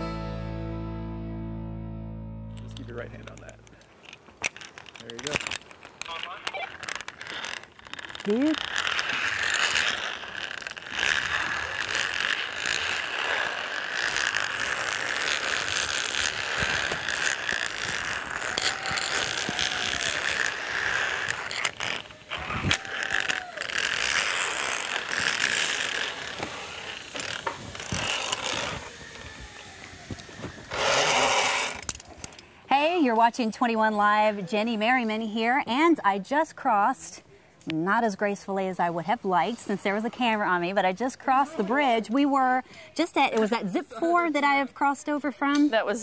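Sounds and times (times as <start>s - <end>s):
trolley whirring along cable: 2.6s - 33.7s
short squeaks: 3.4s - 32.4s.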